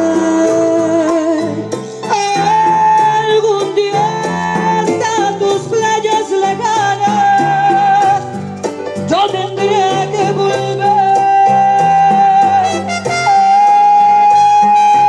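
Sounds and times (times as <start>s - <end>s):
latin american dance music with singing: 0.0s - 15.0s.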